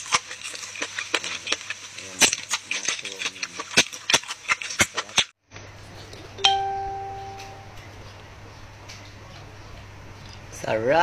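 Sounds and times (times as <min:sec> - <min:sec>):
wet eating clicks and smacks: 0:00.0 - 0:05.3
low steady hum: 0:05.6 - 0:11.0
bell-like chime: 0:06.4 - 0:07.8.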